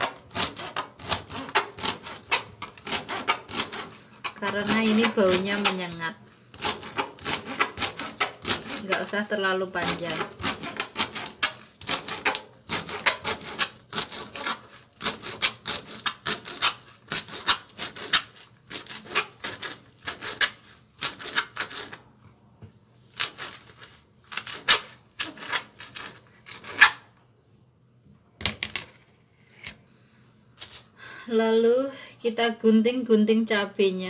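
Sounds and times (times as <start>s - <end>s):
knife chopping on plastic board: 0.0s - 6.0s, 6.6s - 9.1s, 9.8s - 22.0s.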